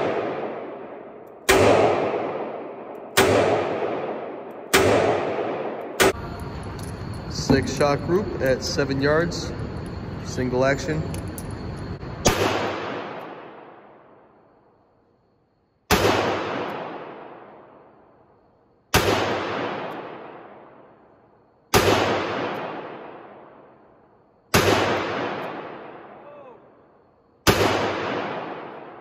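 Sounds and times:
revolver shots echoing indoors: 0:00.0 - 0:07.0, 0:12.1 - 0:14.4, 0:15.8 - 0:18.0, 0:18.9 - 0:21.0, 0:21.7 - 0:23.9, 0:24.5 - 0:26.2, 0:27.4 - 0:29.0.

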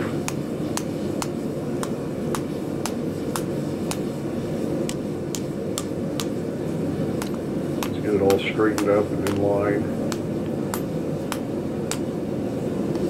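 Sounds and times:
hammer blows on hot metal: 0:07.1 - 0:12.2.

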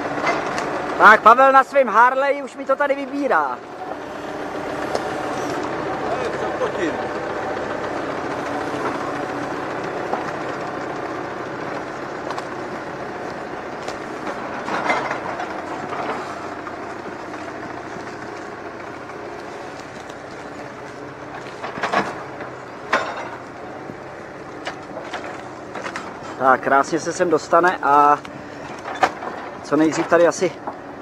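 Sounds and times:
tractor engine running: 0:00.0 - 0:31.0
wooden knocks of logs landing: 0:12.2 - 0:26.4.

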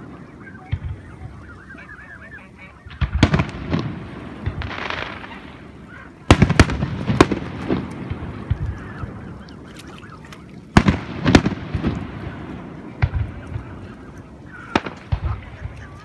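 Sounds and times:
firework bangs: 0:02.9 - 0:08.6, 0:10.7 - 0:13.8, 0:14.6 - 0:15.8.

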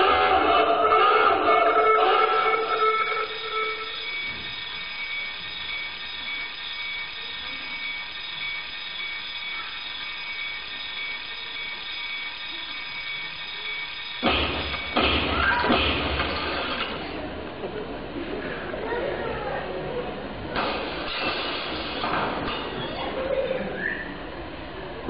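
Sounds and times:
alarm clock ringing: 0:02.5 - 0:15.0.

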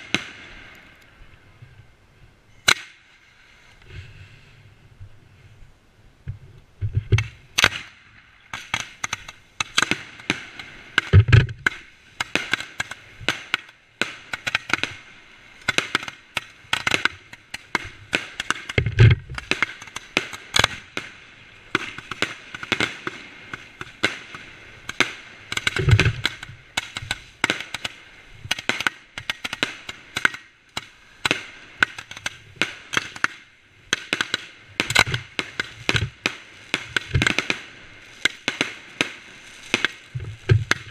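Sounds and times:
fireworks cracking and popping: 0:00.0 - 0:01.0, 0:06.8 - 0:40.9
fireworks booms: 0:31.2 - 0:40.9.

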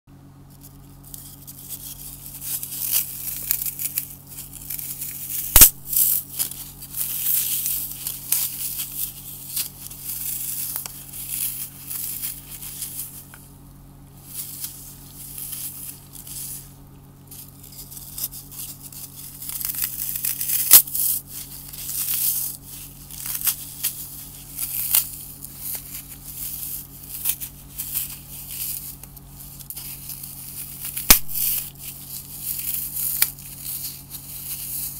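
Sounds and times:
foam crunching and crackling: 0:00.3 - 0:34.9
sharp snaps of foam breaking: 0:02.6 - 0:13.4, 0:18.9 - 0:22.5, 0:23.1 - 0:34.0.

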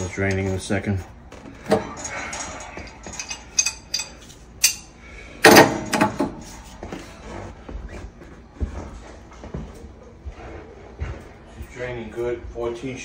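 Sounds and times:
pipe wrench clicking and clanking: 0:01.6 - 0:04.9.

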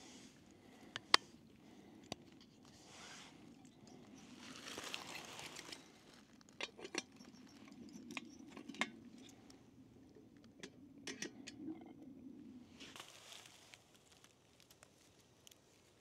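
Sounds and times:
soft rustle: 0:02.4 - 0:06.5, 0:12.6 - 0:16.0.

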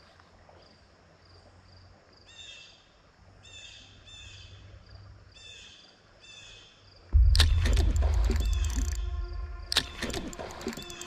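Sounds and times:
low steady rumble: 0:07.2 - 0:11.0.

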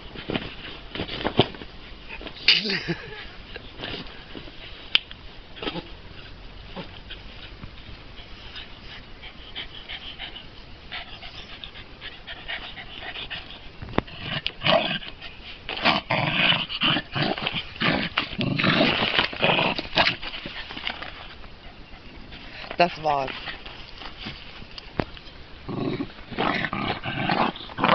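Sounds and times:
dog growling: 0:15.8 - 0:20.2, 0:25.6 - 0:27.9.

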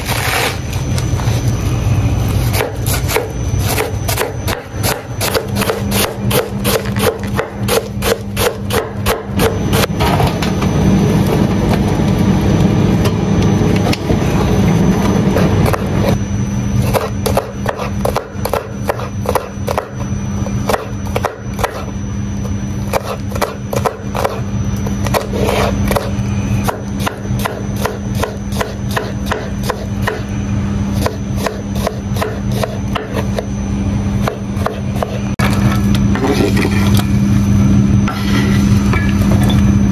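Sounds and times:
knife chopping on wooden board: 0:02.5 - 0:09.9, 0:16.9 - 0:19.9, 0:26.7 - 0:30.2, 0:31.0 - 0:33.4
low hum: 0:09.4 - 0:17.6, 0:33.3 - 0:39.9.

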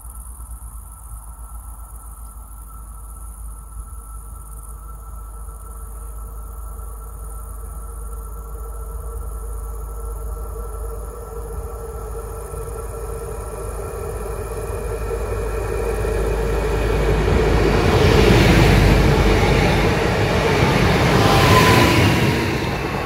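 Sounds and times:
diesel train passing: 0:09.3 - 0:23.0.

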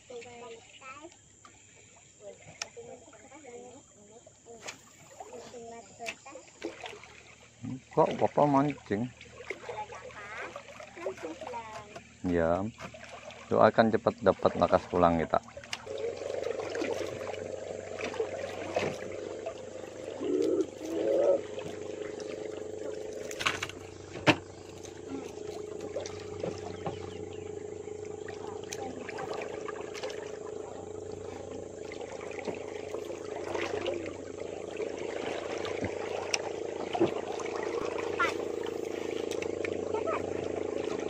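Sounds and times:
small motor humming: 0:14.9 - 0:41.0.

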